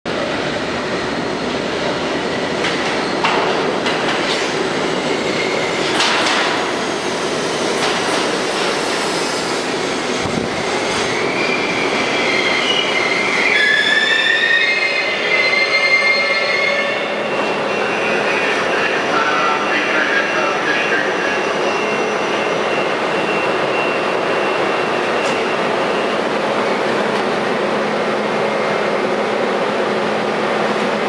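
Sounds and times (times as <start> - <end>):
subway train wheels rumbling: 0.0 - 31.0
high wavering brake squeal: 9.0 - 26.9.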